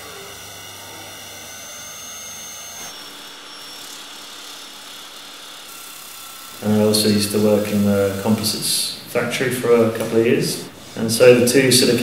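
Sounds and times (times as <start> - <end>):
disc sander: 0.0 - 8.5
electric circular saw: 0.0 - 8.5.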